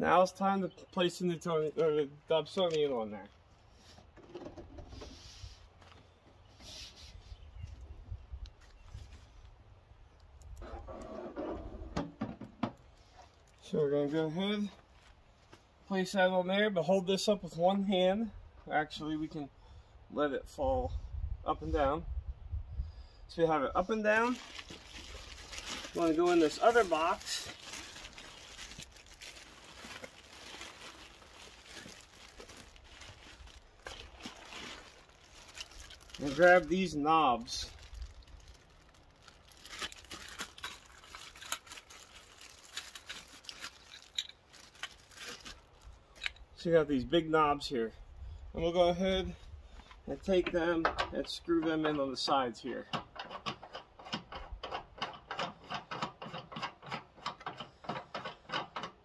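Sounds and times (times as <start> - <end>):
plastic wrapping crinkling: 23.8 - 45.9.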